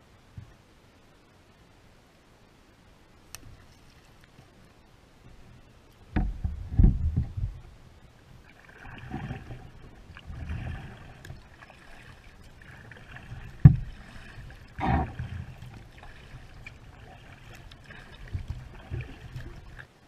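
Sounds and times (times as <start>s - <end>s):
water noise: 0.0s - 20.0s
hollow thumps on plastic kayak: 13.5s - 13.9s, 14.8s - 15.5s.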